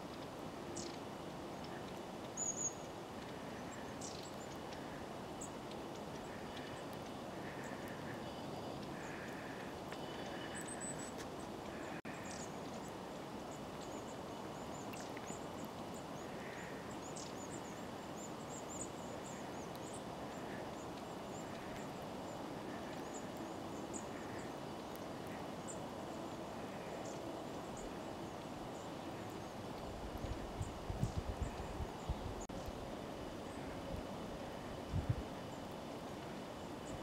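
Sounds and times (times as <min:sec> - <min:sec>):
background noise: 0:00.0 - 0:37.0
small birds calling: 0:00.7 - 0:32.8.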